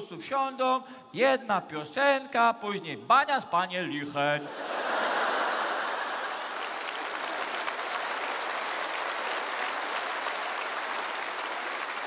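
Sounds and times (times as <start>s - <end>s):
audience laughter: 4.4s - 7.0s
audience applauding: 4.8s - 12.0s.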